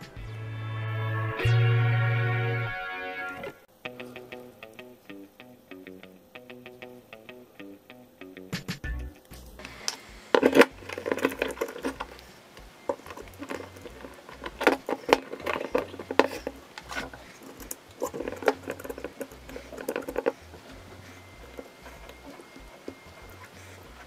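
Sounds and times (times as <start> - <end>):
handling rubbing tapping and clicking: 8.6 - 24.0.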